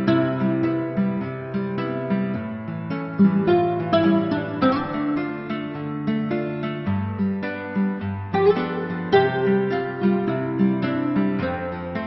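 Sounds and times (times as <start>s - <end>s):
plucked string instrument melody: 0.0s - 12.0s.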